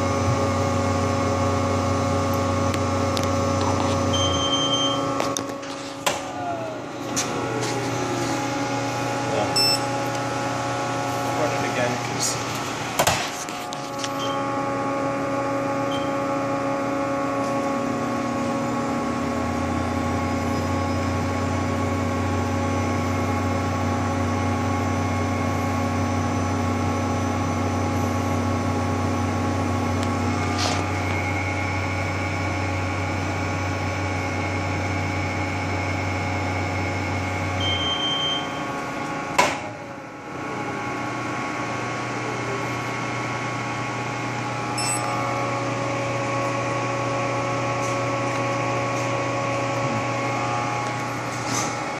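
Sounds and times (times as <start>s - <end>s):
deeper hum: 0.0s - 51.9s
oven blower hum: 0.0s - 51.9s
short beep: 4.1s - 5.1s, 9.5s - 9.9s, 37.6s - 38.7s, 44.8s - 45.2s.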